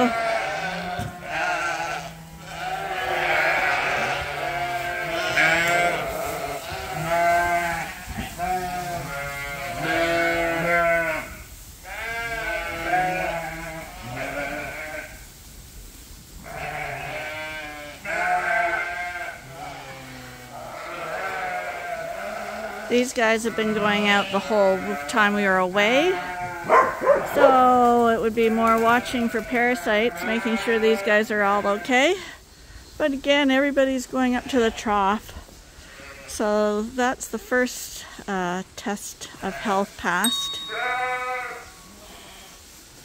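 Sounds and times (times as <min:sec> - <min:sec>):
sheep bleating: 0:00.0 - 0:15.1, 0:16.4 - 0:27.5, 0:28.4 - 0:32.2, 0:35.8 - 0:36.4, 0:39.4 - 0:42.6.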